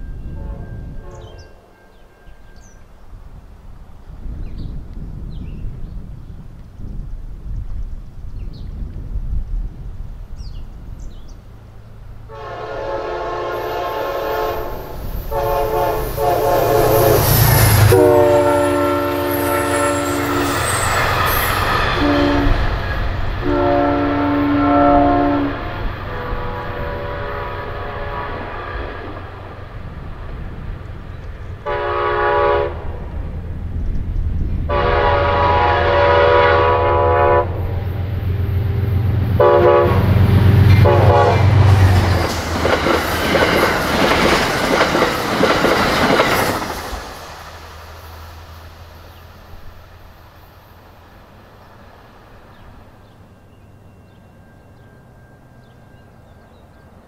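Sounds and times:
low rumble of trains: 0.0 - 57.0
locomotive horn blasts: 0.2 - 1.8, 12.3 - 20.9, 21.8 - 22.8, 23.4 - 29.2, 31.6 - 32.9, 34.7 - 37.8, 38.4 - 41.9
train rushing past: 9.4 - 57.0.

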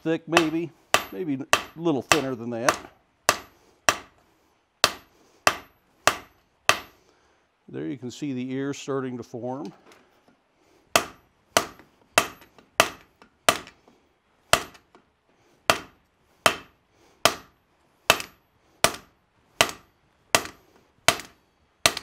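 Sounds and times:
hammer striking hot steel on anvil: 0.3 - 4.2, 4.8 - 7.0, 11.0 - 13.7, 14.5 - 14.8, 15.7 - 22.0.

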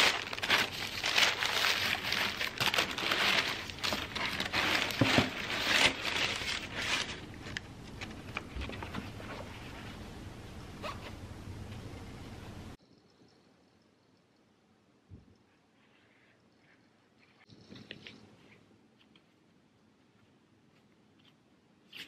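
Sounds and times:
plastic bags rustling and crinkling: 0.0 - 10.0.

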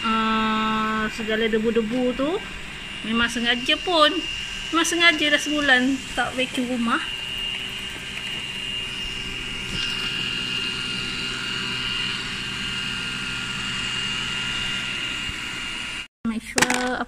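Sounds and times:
suction fan hiss: 0.0 - 15.7
robot vacuum motor whine: 0.0 - 16.1.

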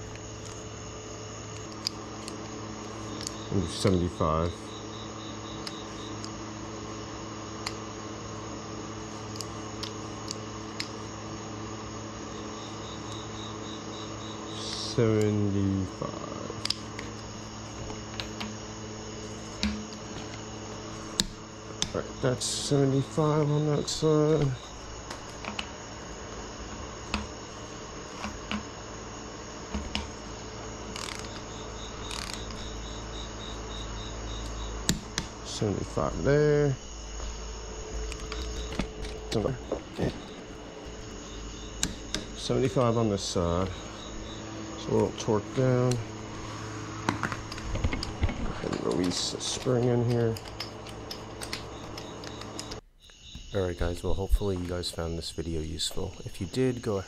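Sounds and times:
cricket chirping: 0.0 - 57.0
low electrical hum: 0.0 - 57.0.

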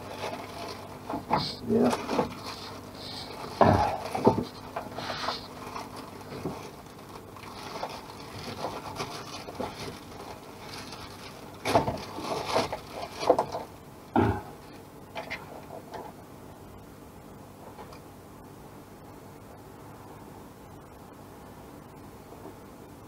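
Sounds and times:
plastic bag rustling and crinkling: 0.0 - 13.8.

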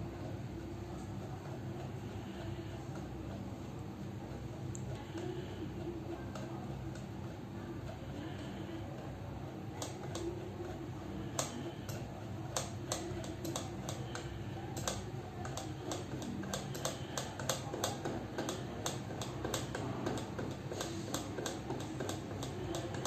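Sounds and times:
steady low hum: 0.0 - 23.0
computer mouse clicks: 4.6 - 7.1, 7.8 - 23.0.

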